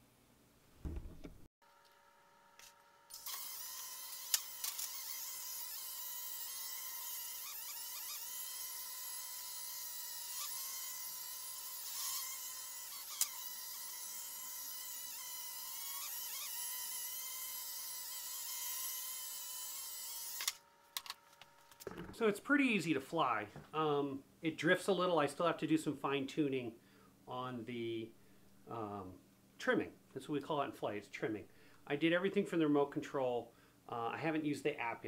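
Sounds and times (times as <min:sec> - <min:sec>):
toy drone motors whining: 0:03.1 - 0:20.6.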